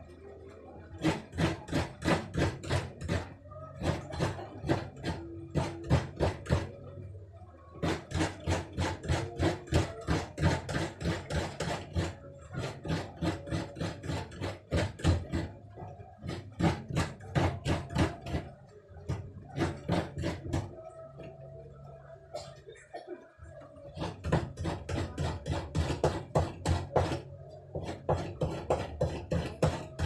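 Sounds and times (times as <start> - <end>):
coconut scraping on a grater: 1.0 - 6.8, 7.8 - 15.5, 16.2 - 18.6, 19.6 - 20.7, 23.9 - 30.0.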